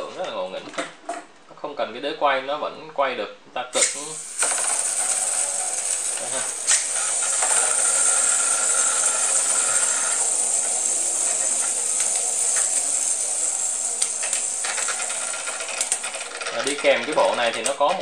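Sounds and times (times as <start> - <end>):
spinning tops clicking together: 3.8 - 18.0
spinning tops whirring: 3.8 - 18.0.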